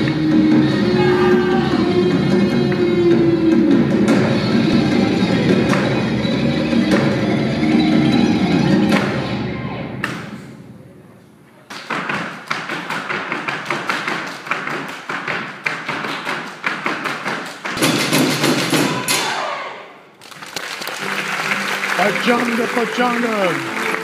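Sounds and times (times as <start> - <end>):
music: 0.0 - 11.2, 20.5 - 24.0
flamenco footwork on stage floor: 11.7 - 19.0.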